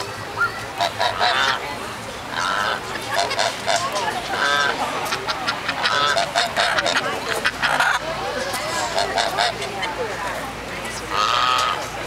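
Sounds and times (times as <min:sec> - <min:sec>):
geese honking: 0:00.8 - 0:01.6, 0:02.3 - 0:08.0, 0:08.7 - 0:09.7, 0:11.1 - 0:11.9.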